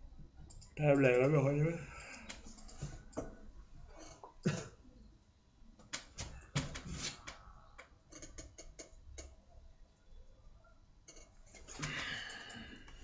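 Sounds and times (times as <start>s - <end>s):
faint clicks: 2.0s - 3.3s.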